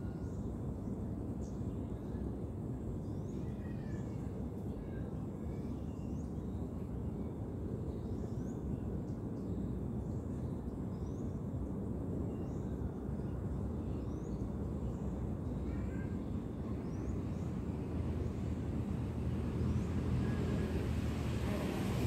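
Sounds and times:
low outdoor rumble: 13.6 - 22.0.

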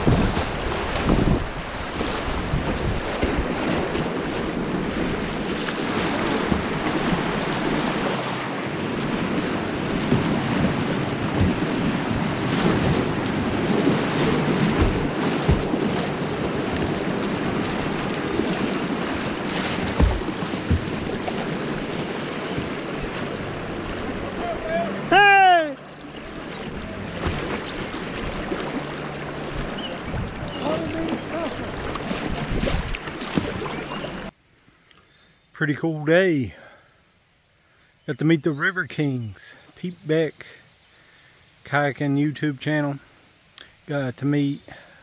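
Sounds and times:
wind buffeting microphone: 0.0 - 24.4, 26.3 - 34.3
river rushing over rapids: 0.0 - 27.2.

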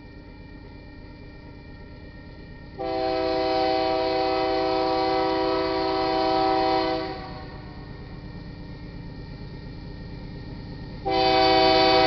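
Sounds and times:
locomotive air horn chord: 2.8 - 7.8, 11.0 - 12.0.

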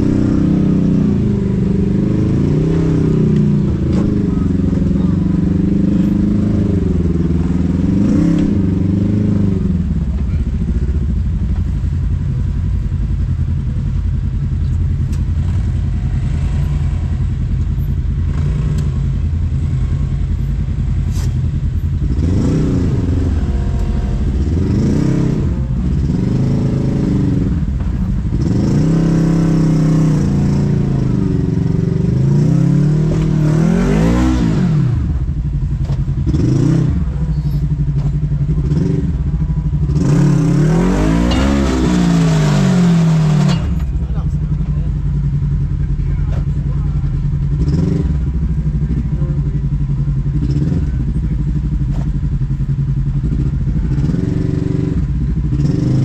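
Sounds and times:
utility vehicle engine revving: 0.0 - 56.0
clatter: 2.0 - 33.5, 34.2 - 56.0
sharp knocks from rough ground: 35.8 - 36.2, 37.9 - 38.3, 40.8 - 44.0, 51.9 - 52.2.

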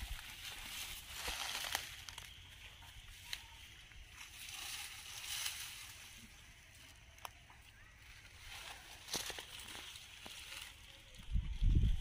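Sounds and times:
twigs cracking: 0.0 - 2.5, 8.4 - 11.0
dry fronds rustling and crunching: 0.0 - 12.0.

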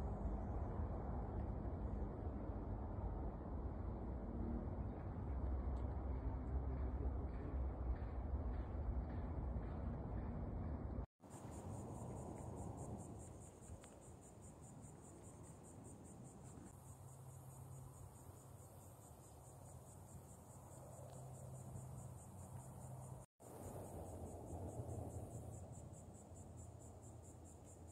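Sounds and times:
insect chorus trilling: 11.2 - 27.9.

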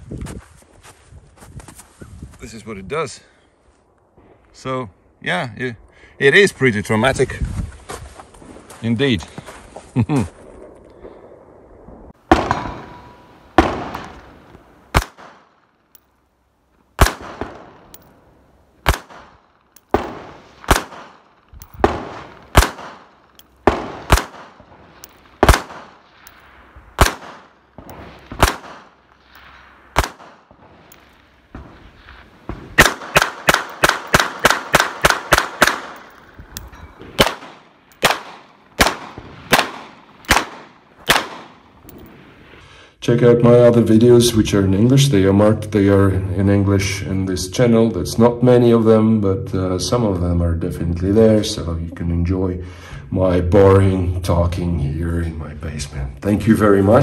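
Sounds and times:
handgun shots: 14.9 - 15.5, 17.0 - 18.1, 18.8 - 26.0, 27.0 - 28.9, 30.0 - 30.4, 32.5 - 36.2, 37.0 - 41.6.

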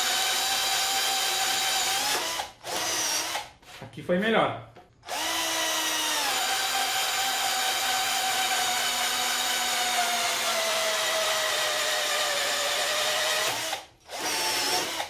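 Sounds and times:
cordless drill boring into wood: 0.0 - 3.5, 5.0 - 15.0.

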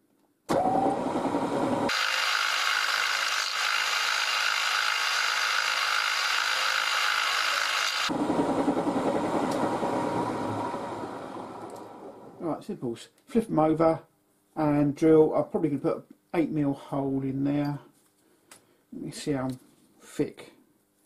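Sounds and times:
milling machine spindle running: 0.6 - 12.4
drill cutting through steel: 1.8 - 8.1.

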